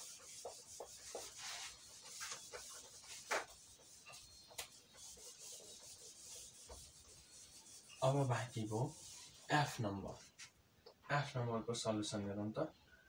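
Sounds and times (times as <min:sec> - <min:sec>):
eraser wiping a whiteboard: 0:00.0 - 0:10.5.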